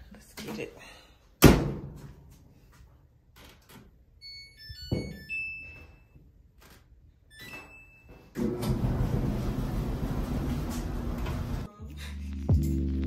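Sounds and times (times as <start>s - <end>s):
dryer chime tune and beeps: 4.2s - 6.2s, 7.3s - 8.4s
dryer drum and motor running: 8.4s - 11.7s.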